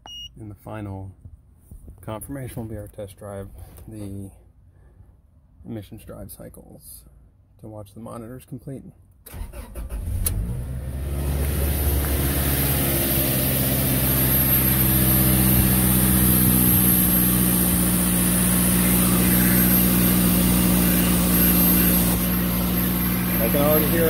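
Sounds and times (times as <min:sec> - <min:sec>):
car engine idling: 0:11.2 - 0:24.0
electric air pump running: 0:12.1 - 0:24.0.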